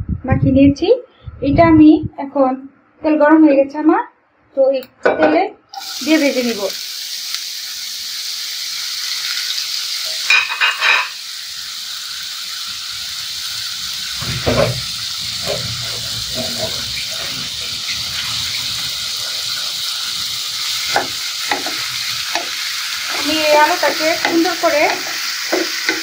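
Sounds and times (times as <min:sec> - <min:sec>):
potato sizzling in hot oil: 0:05.8 - 0:26.0
utensil tapping pan: 0:20.7 - 0:26.0.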